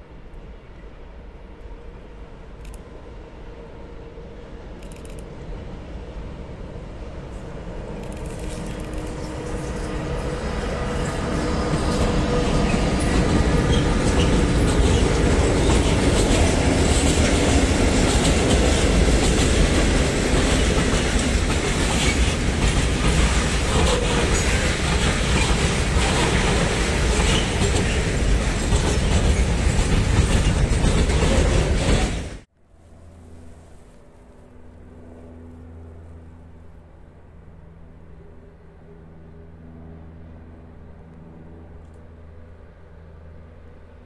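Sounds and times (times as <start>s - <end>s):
electric locomotive humming: 0.0s - 44.0s
train wheels clattering over rail joints: 8.0s - 32.5s.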